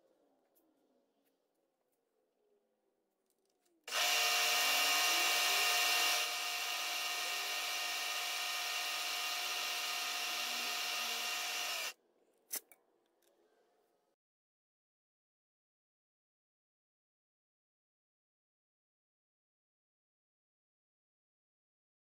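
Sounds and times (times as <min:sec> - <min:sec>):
drill spindle whining: 0:03.9 - 0:12.0.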